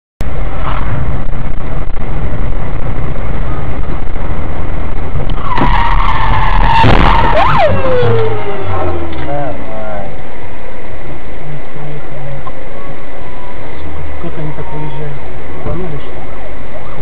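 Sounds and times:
road and wind rumble in car: 0:00.2 - 0:17.0
car collision crash: 0:05.3 - 0:09.2
tyre screech: 0:05.3 - 0:09.3.

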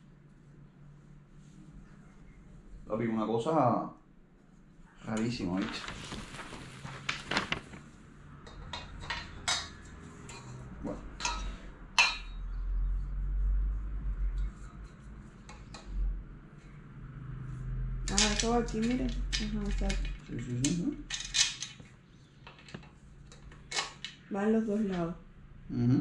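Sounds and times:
clicks and knocks of shelf pieces: 0:18.1 - 0:24.2.

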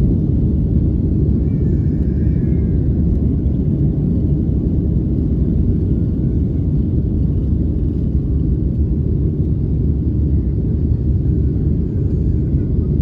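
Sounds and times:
jet engines rumbling at takeoff: 0:00.0 - 0:13.0.

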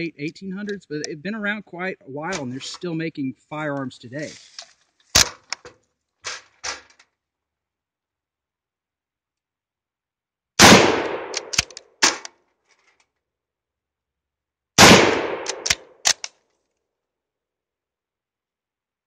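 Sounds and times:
rifle shots: 0:10.6 - 0:12.3, 0:14.8 - 0:16.3
rifle bolt metallic clicks: 0:11.0 - 0:12.4, 0:15.4 - 0:16.4.

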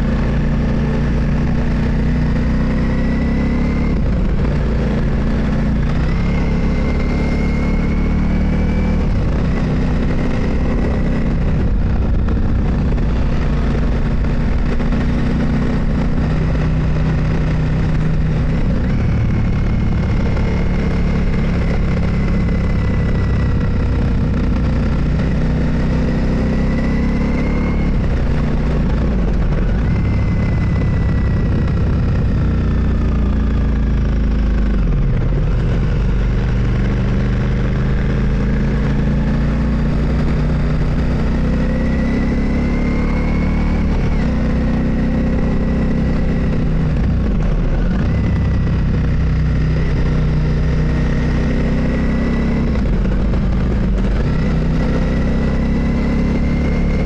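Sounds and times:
motorcycle engine accelerating: 0:00.0 - 0:57.0.

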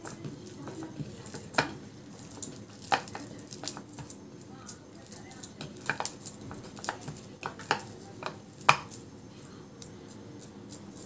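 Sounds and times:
hands kneading dough: 0:00.0 - 0:11.0
fingers knocking against bowl: 0:05.4 - 0:09.0.

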